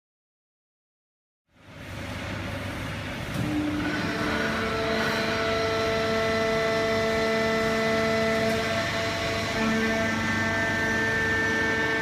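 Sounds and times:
baling press mechanical noise: 0:02.1 - 0:12.0
machine whining tones: 0:03.3 - 0:12.0.

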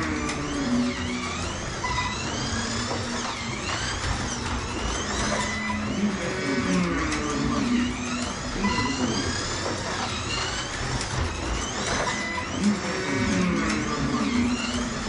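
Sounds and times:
slot car motor whining: 0:00.0 - 0:15.0.

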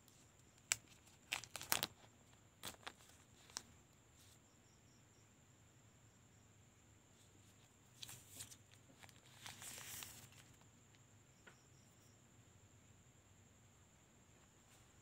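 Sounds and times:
packaging rustle: 0:00.6 - 0:03.7, 0:08.0 - 0:10.6
faint high whine: 0:02.0 - 0:15.0.

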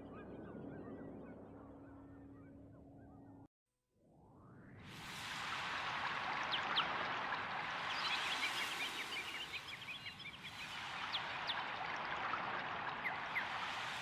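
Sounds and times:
running water: 0:05.2 - 0:14.0.

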